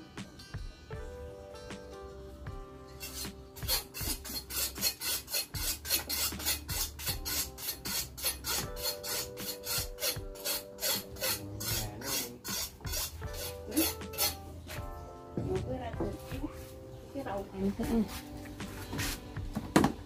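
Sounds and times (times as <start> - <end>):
metal ladle scraping pot: 2.9 - 14.8.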